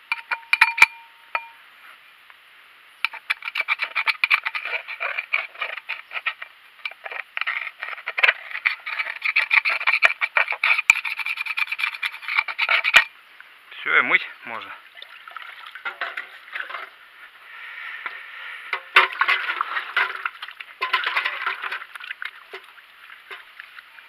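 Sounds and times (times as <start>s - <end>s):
screwdriver scraping metal: 3.1s - 13.1s.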